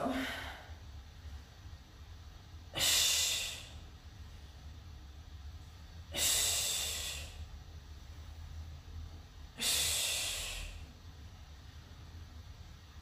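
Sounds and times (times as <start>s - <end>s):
woman exhaling forcefully: 2.7s - 3.8s, 6.1s - 7.4s, 9.6s - 10.9s.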